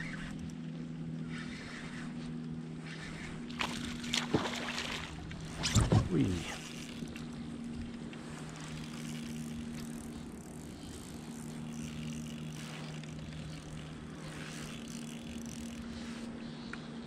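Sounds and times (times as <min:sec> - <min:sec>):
steady low hum: 0:00.0 - 0:17.0
water washing along hull: 0:03.5 - 0:07.4.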